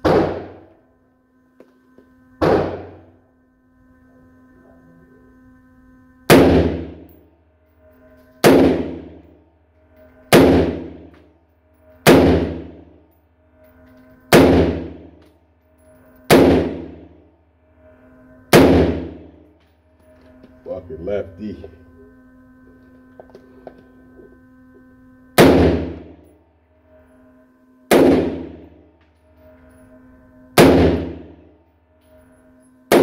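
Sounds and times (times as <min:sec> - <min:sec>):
rifle shots echoing indoors: 0:00.0 - 0:00.8, 0:02.4 - 0:03.2, 0:06.3 - 0:09.4, 0:10.0 - 0:11.3, 0:12.0 - 0:13.2, 0:13.9 - 0:17.3, 0:18.5 - 0:20.0, 0:25.4 - 0:26.3, 0:27.9 - 0:32.2, 0:32.8 - 0:33.0.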